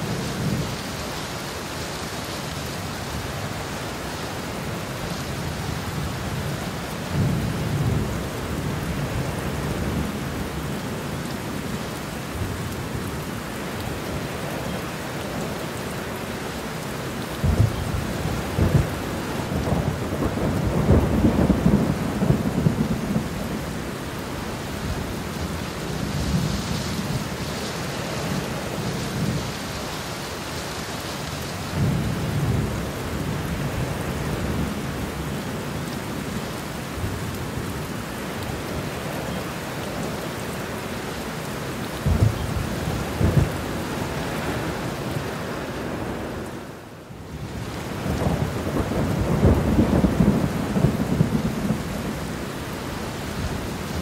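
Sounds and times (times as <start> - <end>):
rain falling: 0.0 - 54.0
thunder rumbling: 17.4 - 23.9, 42.0 - 45.3, 47.9 - 52.4.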